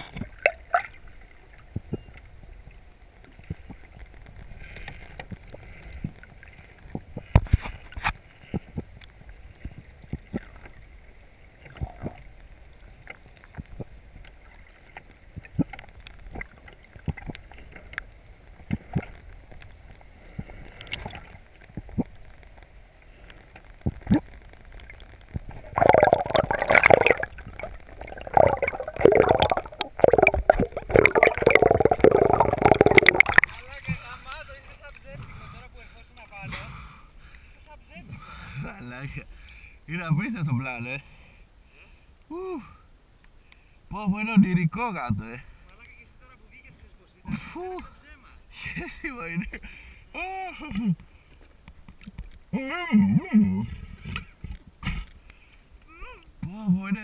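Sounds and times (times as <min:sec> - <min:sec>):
splashing and gurgling: 0:00.0 - 0:02.1, 0:09.5 - 0:22.4, 0:23.7 - 0:34.1
underwater water murmur: 0:00.0 - 0:35.8.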